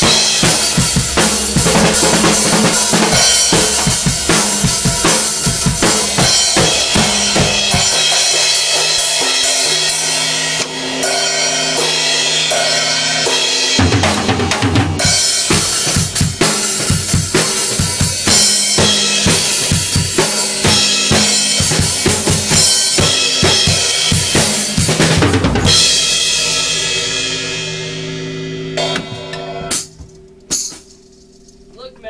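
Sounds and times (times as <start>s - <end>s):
bass drum: 0.0s - 8.5s, 13.8s - 26.9s.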